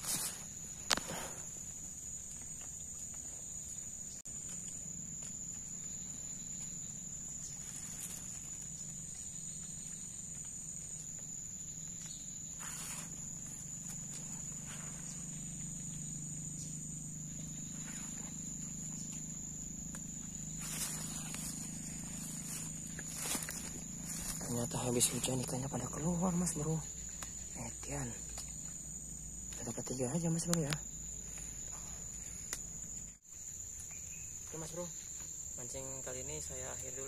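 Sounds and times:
rustles in undergrowth: 0:00.0 - 0:27.5
insects trilling: 0:00.0 - 0:37.0
second high insect tone: 0:00.0 - 0:37.0.

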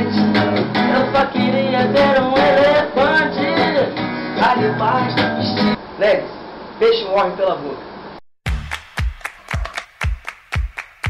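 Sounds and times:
boy singing: 0:00.0 - 0:05.2
acoustic guitar strumming: 0:00.0 - 0:05.8.

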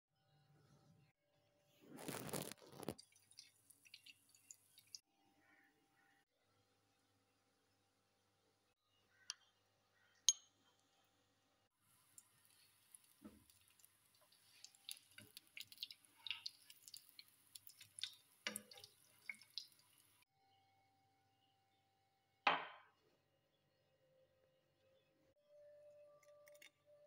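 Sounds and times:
patties frying in oil: 0:02.0 - 0:05.0, 0:11.8 - 0:20.2.

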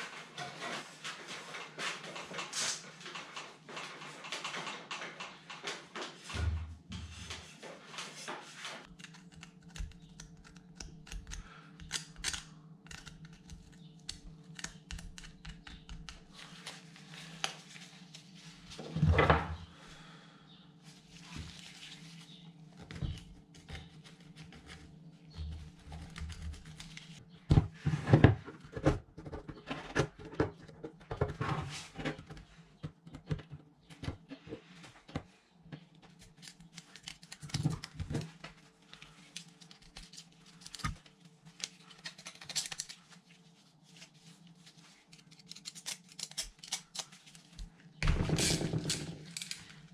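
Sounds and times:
small metal clicks and scrapes: 0:45.1 - 0:47.1, 0:48.4 - 0:49.8.

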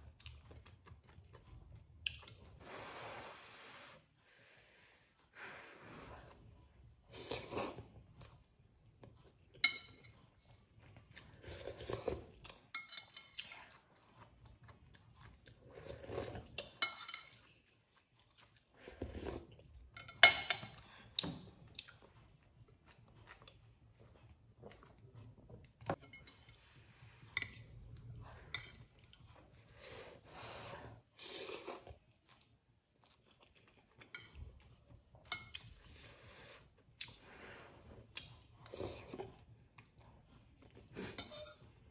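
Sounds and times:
cutlery clinking on plate: 0:20.0 - 0:20.8
noodles slurped and chewed: 0:26.5 - 0:41.9.

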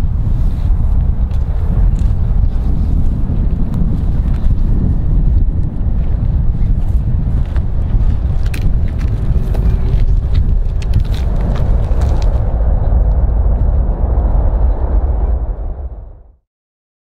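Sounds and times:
jet engines rumbling: 0:00.0 - 0:16.4.

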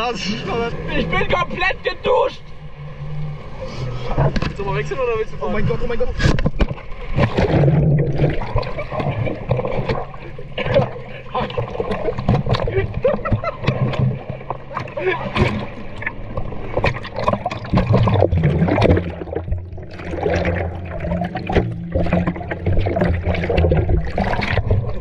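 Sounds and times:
jet ski engine: 0:00.0 - 0:06.1
water rushing and splashing: 0:00.0 - 0:25.0.

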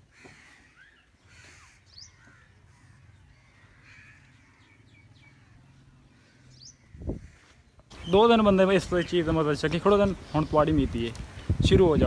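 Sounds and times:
bird chirps: 0:00.4 - 0:09.4.

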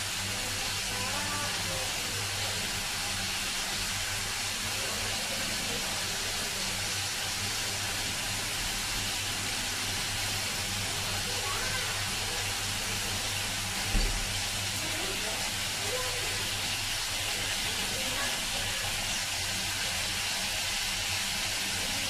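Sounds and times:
meat sizzling in a frying pan: 0:00.0 - 0:22.0.

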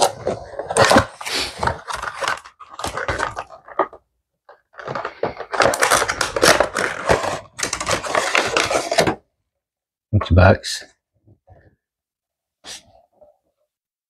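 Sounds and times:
plastic tray crinkling and scraping: 0:00.0 - 0:09.2.

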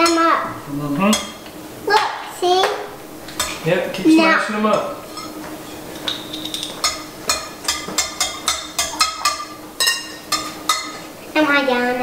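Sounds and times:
whisk clinking against ceramic bowl: 0:04.7 - 0:05.4, 0:06.0 - 0:11.0.

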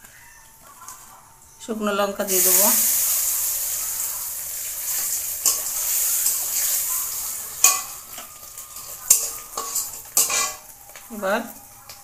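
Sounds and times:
chillies sizzling in hot oil: 0:02.2 - 0:12.0
metal spatula scraping a pan: 0:02.5 - 0:10.7.

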